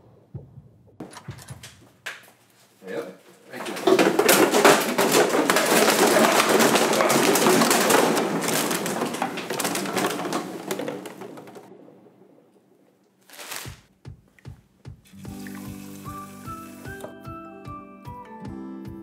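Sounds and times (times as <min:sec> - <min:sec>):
plastic bottles clattering on tiles: 0:03.4 - 0:11.9.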